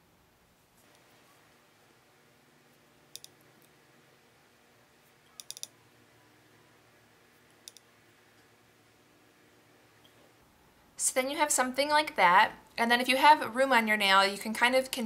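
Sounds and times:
small sharp clicks: 3.1s - 3.7s, 5.3s - 5.8s, 7.6s - 8.5s.

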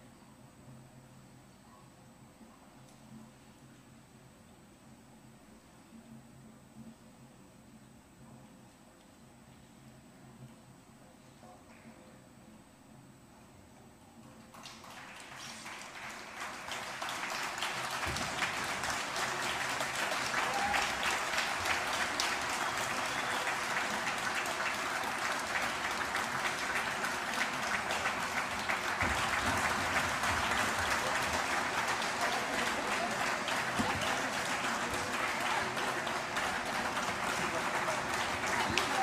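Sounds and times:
audience applauding: 14.5s - 39.0s.

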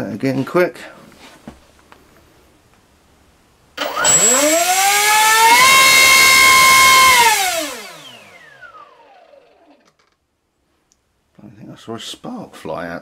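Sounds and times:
electric motor whine: 3.8s - 9.8s.

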